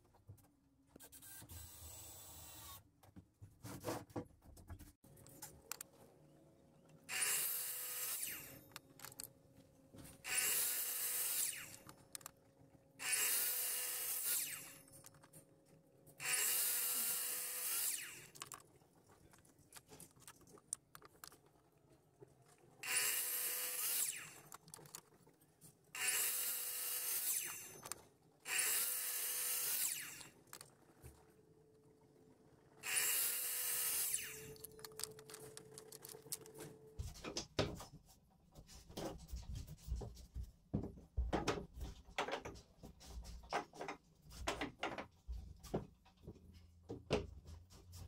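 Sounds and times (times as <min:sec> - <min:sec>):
mitre saw cutting wood: 0:07.1 - 0:08.7, 0:10.2 - 0:11.9, 0:13.0 - 0:14.8, 0:16.2 - 0:18.4, 0:22.8 - 0:25.0, 0:26.0 - 0:27.9, 0:28.5 - 0:30.6, 0:32.8 - 0:34.7.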